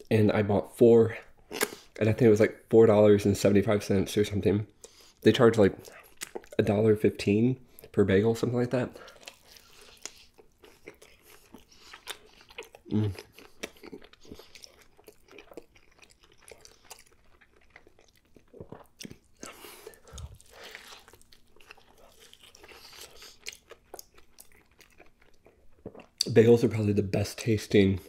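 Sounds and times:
close-miked chewing: 4.8s - 6.6s, 9.0s - 26.3s
person humming mmm: 12.9s - 13.3s.

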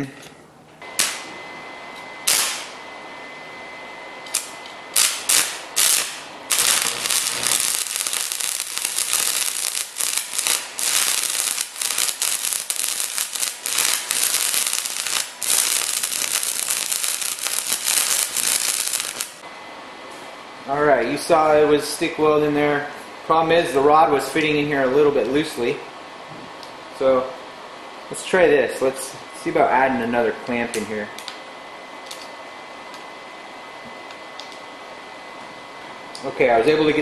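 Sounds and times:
welding arc crackling and sizzling: 0.8s - 1.4s, 2.0s - 2.8s, 4.2s - 19.4s.

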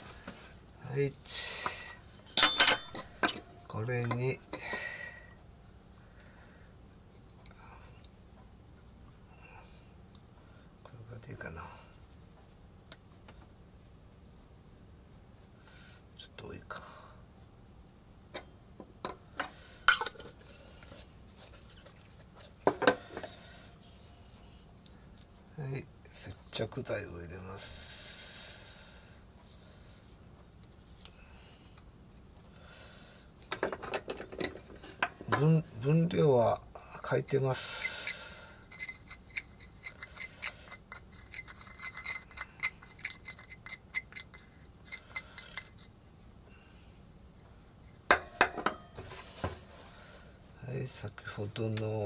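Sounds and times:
stirrer scraping metal cup: 37.6s - 45.9s
stirrer clinking on metal cup: 38.7s - 45.8s.

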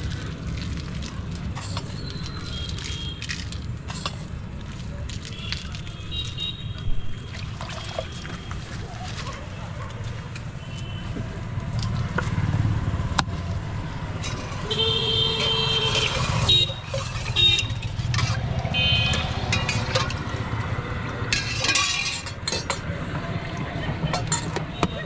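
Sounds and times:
street traffic: 0.0s - 25.0s
vehicle horn honks: 14.7s - 16.7s
ladle clinking against pots: 15.4s - 18.5s, 19.1s - 20.4s, 21.3s - 23.0s, 24.0s - 25.0s.

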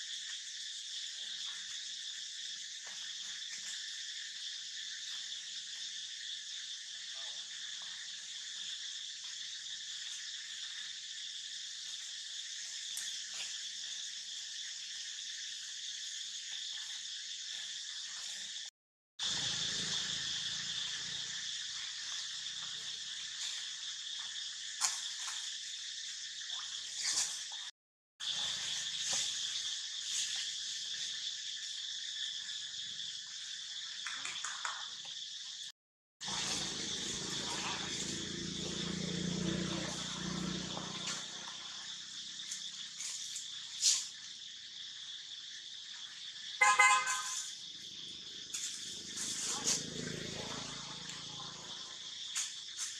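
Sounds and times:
insects droning: 0.0s - 52.9s
vehicle horn tooting: 46.6s - 47.4s.

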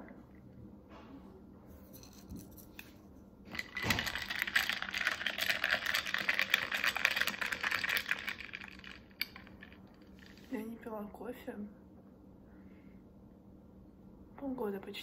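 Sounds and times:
ice cubes clinking in glass: 3.5s - 10.5s.

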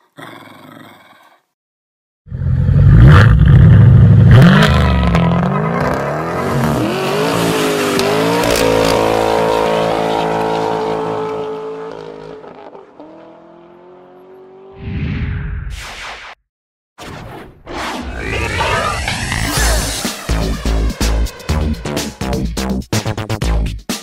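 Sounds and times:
car engine revving: 2.4s - 14.8s.

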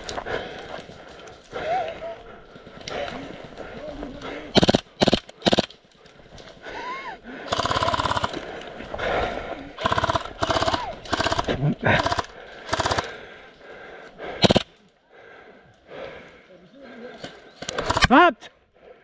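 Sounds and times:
airsoft guns firing: 4.5s - 5.8s, 7.4s - 8.5s, 9.8s - 13.2s, 14.4s - 14.7s, 17.6s - 18.2s.

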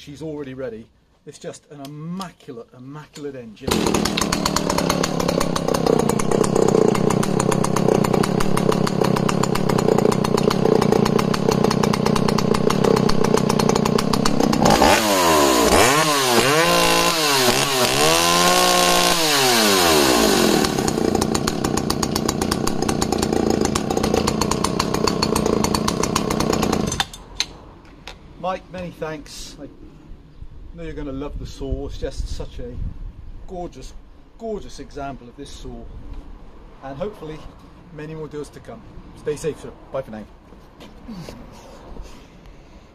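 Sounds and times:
chainsaw idling and revving: 3.7s - 27.1s.

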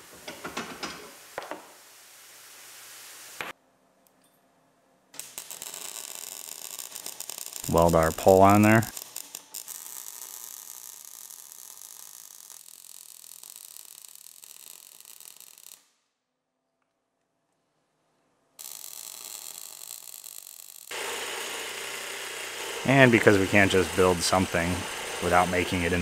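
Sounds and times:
welding arc crackling: 5.2s - 16.0s, 18.6s - 26.0s.

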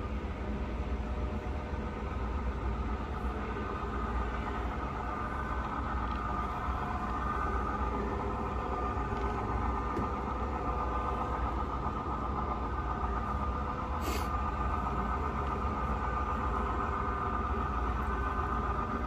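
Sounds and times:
model locomotive engine drone: 0.0s - 19.0s
short hiss: 14.0s - 14.3s.

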